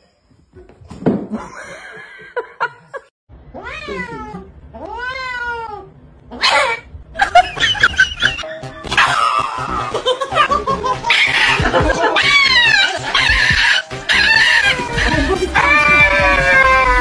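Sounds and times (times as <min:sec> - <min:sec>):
cat yowling: 0:03.5 - 0:06.9, 0:12.2 - 0:17.0.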